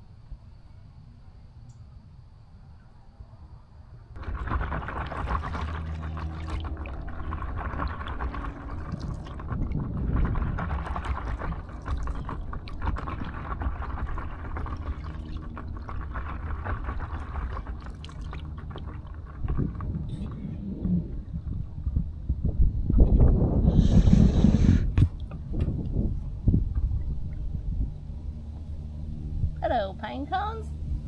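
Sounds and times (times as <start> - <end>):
low rumble: 4.1 - 31.0
water splashing against hull: 4.2 - 27.8.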